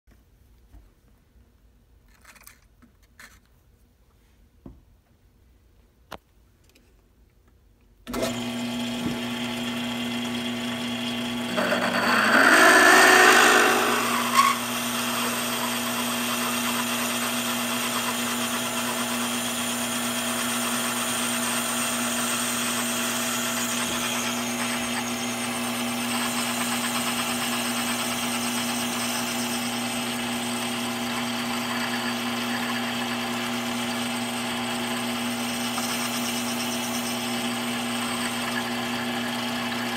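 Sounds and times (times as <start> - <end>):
lathe motor and gear whine: 8.1 - 39.9.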